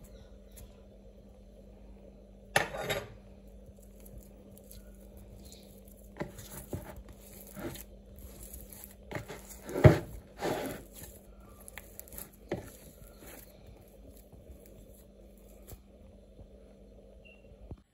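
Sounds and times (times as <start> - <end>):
dough squelching and slapping: 3.4 - 16.8
spoon scraping bowl: 4.6 - 15.8.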